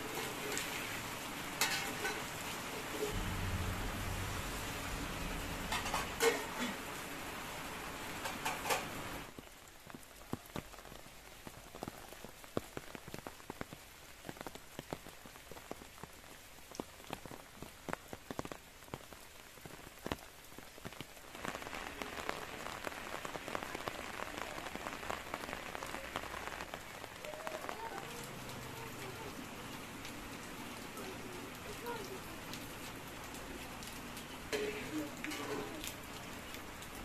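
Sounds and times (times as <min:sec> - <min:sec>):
rain drops pattering: 0:00.0 - 0:37.0.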